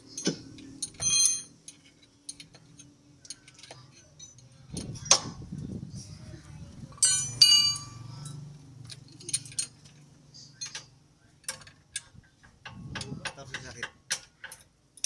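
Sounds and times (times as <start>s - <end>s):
loud metal clang: 7.0s - 8.0s
hand tools tapping on steel: 7.0s - 10.0s, 10.6s - 15.0s.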